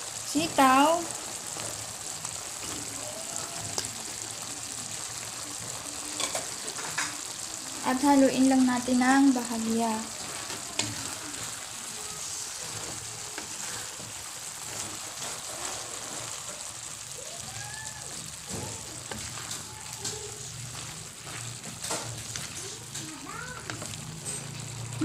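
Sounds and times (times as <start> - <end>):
vegetables sizzling in a pan: 0.0 - 25.0
wooden spatula scraping a pan: 9.3 - 17.1, 18.0 - 25.0.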